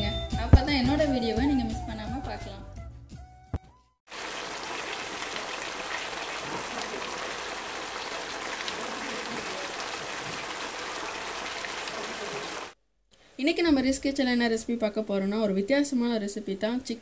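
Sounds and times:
curry sizzling in a pan: 0:04.1 - 0:12.8.

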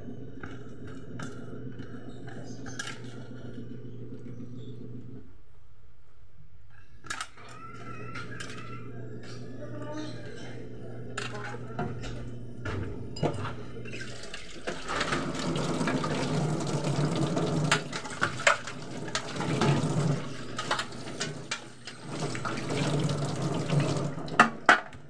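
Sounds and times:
tap water running into sink: 0:13.9 - 0:24.9
container knocking against sink: 0:22.1 - 0:25.0.

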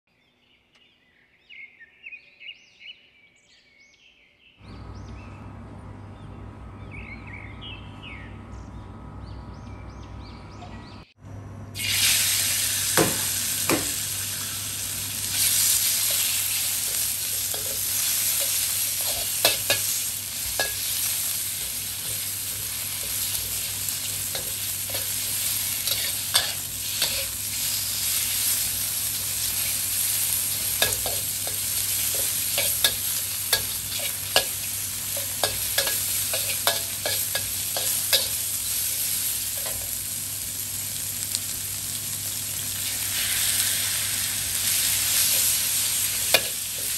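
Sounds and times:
low hum: 0:04.6 - 0:11.8
pork sizzling in hot oil: 0:11.8 - 0:46.9
spatula scraping a wok: 0:15.2 - 0:40.0, 0:42.8 - 0:46.9.

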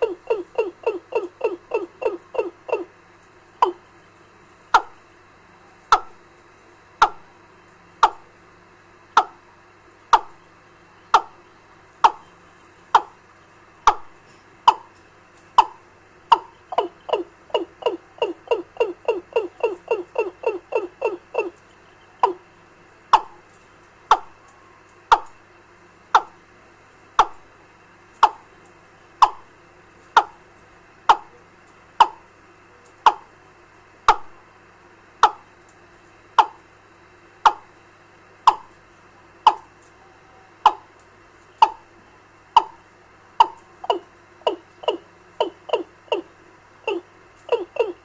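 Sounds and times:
bird call through loudspeaker: 0:00.0 - 0:02.9, 0:15.6 - 0:22.4, 0:43.4 - 0:46.3, 0:46.9 - 0:48.0
faint hiss and hum: 0:00.0 - 0:48.0.

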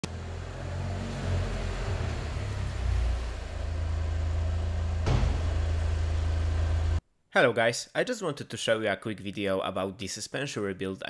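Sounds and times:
car engine idling: 0:01.6 - 0:07.0.

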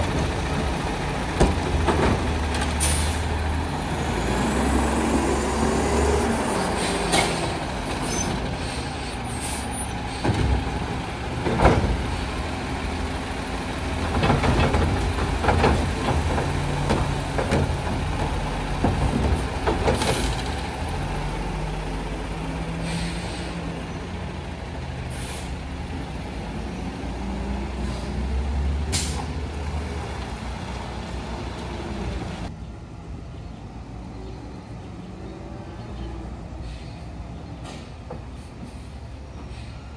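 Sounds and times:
air brake hisses: 0:22.8 - 0:23.6, 0:25.1 - 0:25.6, 0:39.5 - 0:39.9.

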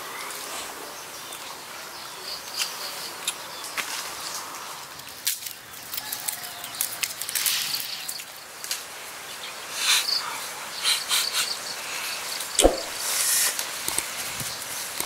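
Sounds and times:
leaves rustling and crackling: 0:00.0 - 0:09.8
sharp clicks and snaps: 0:12.6 - 0:13.0, 0:13.6 - 0:14.1.

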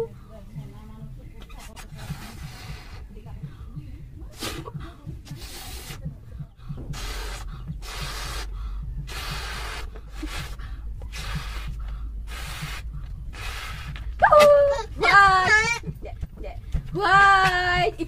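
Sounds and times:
puffs of breath into balloon: 0:01.9 - 0:03.1, 0:05.3 - 0:06.0, 0:06.9 - 0:14.1.

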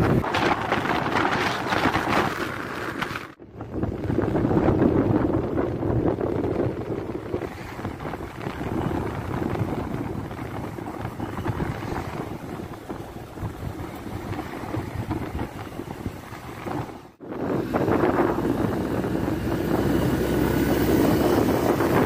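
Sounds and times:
motorcycle engine: 0:00.0 - 0:22.0
road noise: 0:00.0 - 0:22.0
wind buffeting microphone: 0:00.0 - 0:22.0.

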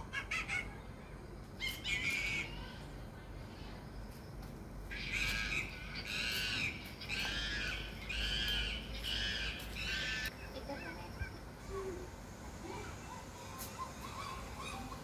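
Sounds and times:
animal calls: 0:04.9 - 0:11.0, 0:12.7 - 0:15.0.

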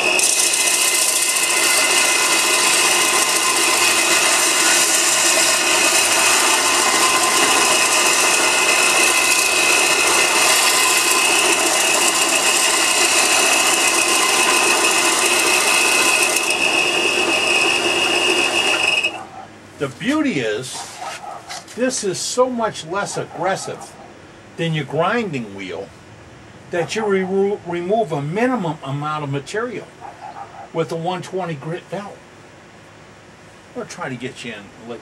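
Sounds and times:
metal tool grinding on belt: 0:00.0 - 0:19.3
belt sander whining: 0:00.0 - 0:21.0.

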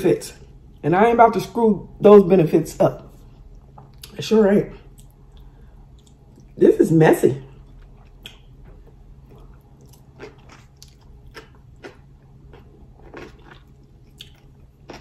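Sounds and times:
person chewing food: 0:04.8 - 0:06.6, 0:07.5 - 0:15.0
wet mouth clicks and smacks: 0:04.9 - 0:06.5, 0:07.7 - 0:08.5.

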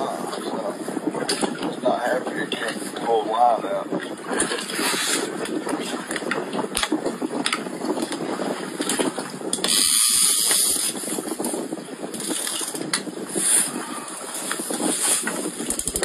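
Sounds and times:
wind gust: 0:00.0 - 0:16.0
fishing reel clicking: 0:09.5 - 0:11.0, 0:15.6 - 0:16.0.

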